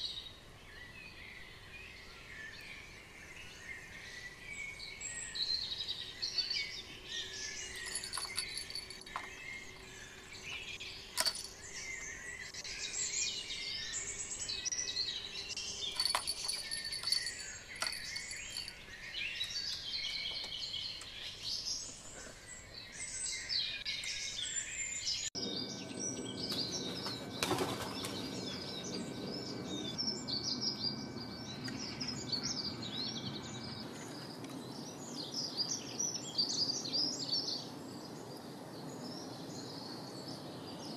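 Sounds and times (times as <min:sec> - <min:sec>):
songbirds chirping: 0:00.0 - 0:40.9.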